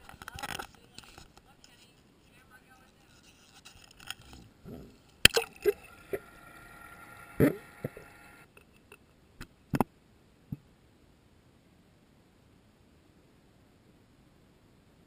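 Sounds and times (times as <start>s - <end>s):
water sloshing and gurgling: 4.2s - 8.4s.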